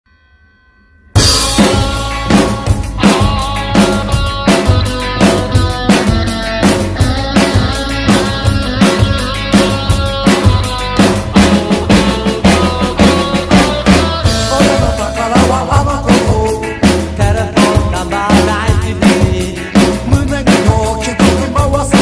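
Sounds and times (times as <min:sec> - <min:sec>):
cymbals: 0:01.2 - 0:08.4
bass drum and snare beat: 0:01.2 - 0:22.0
recorded rockabilly song: 0:01.2 - 0:22.0.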